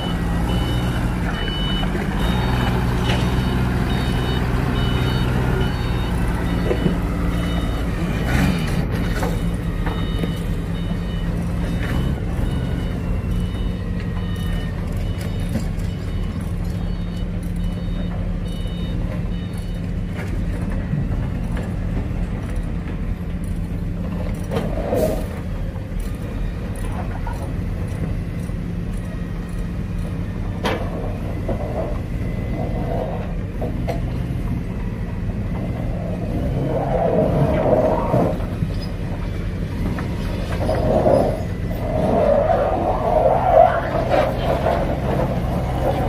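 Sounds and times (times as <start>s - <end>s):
beeping alarm: 0.0s - 19.9s
forklift engine droning: 0.0s - 46.0s.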